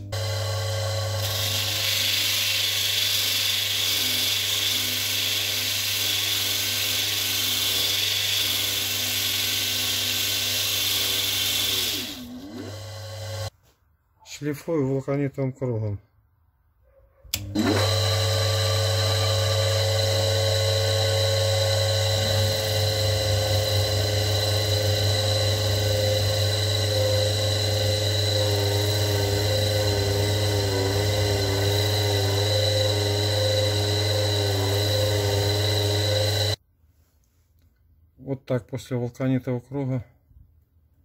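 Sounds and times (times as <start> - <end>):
electric motor humming and whining: 0.0 - 13.5, 17.4 - 36.6.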